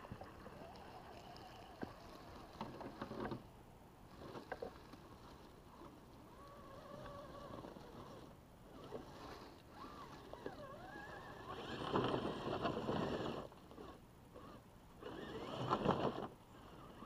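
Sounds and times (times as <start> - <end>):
electric motor whining: 6.3 - 17.0.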